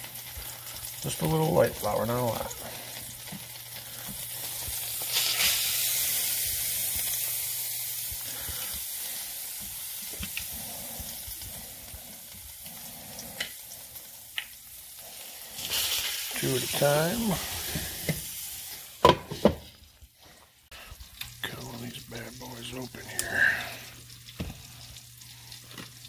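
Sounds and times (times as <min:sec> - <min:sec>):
meat sizzling in oil: 0:00.0 - 0:26.0.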